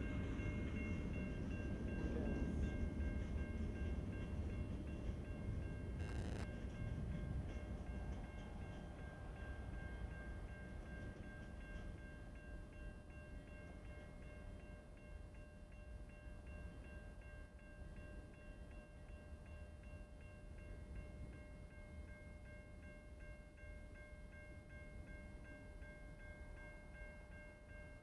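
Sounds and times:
freight train rumble: 0.0s - 15.2s
crossing warning bell ringing: 0.0s - 28.0s.

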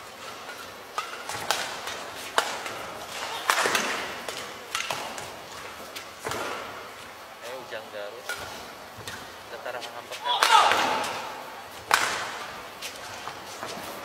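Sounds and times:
rackets hitting shuttlecock: 0.2s - 7.1s, 8.2s - 9.4s, 10.1s - 13.9s.

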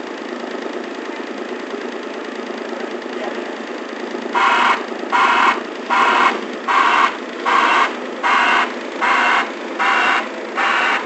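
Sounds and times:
diesel engine running: 0.0s - 11.0s
short high alarm beeps: 4.4s - 11.0s.

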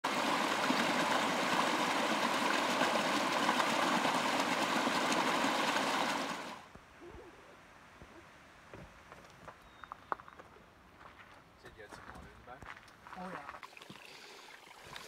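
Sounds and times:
stream rushing over rock: 0.0s - 6.7s.

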